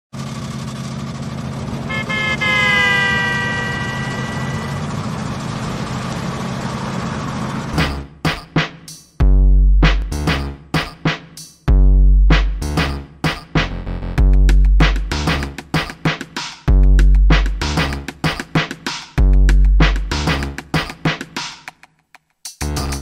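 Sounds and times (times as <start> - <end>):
traffic engine and road hum: 0.2 - 8.0
car horn honking: 1.8 - 5.5
drum-machine beat with deep bass: 7.8 - 21.8, 22.5 - 23.0.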